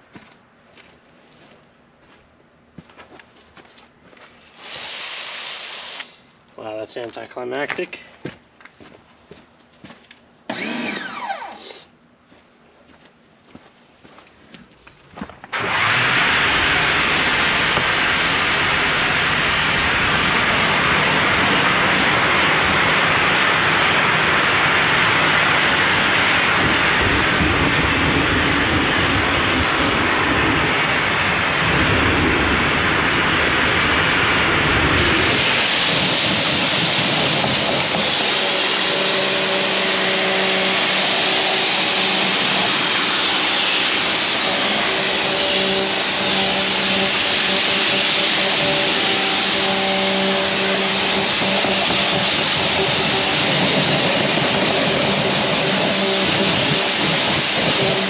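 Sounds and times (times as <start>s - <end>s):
steady motor hum: 10.5s - 11.8s, 15.2s - 58.0s.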